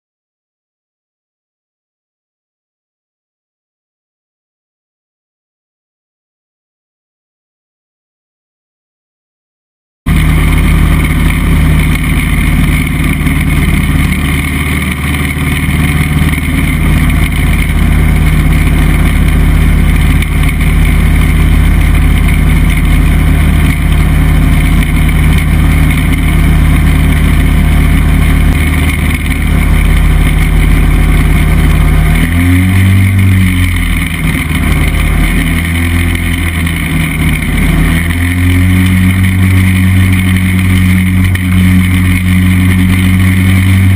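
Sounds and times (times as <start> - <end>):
ultralight engine and propeller: 10.1 - 43.9.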